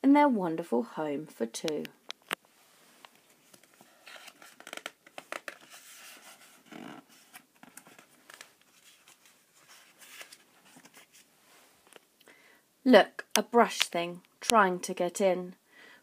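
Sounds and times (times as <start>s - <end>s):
paper rustling and crinkling: 2.9s - 12.0s.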